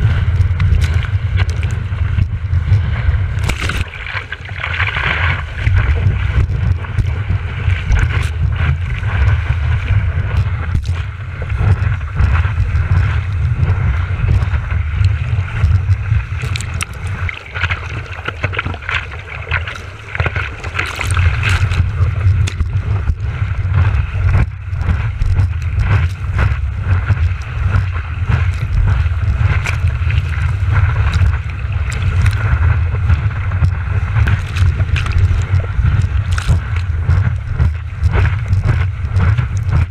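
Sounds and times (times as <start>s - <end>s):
low rumble: 0.0s - 39.9s
water sloshing against surfboard: 0.0s - 39.9s
sharp splashes: 3.0s - 9.8s, 10.6s - 39.9s.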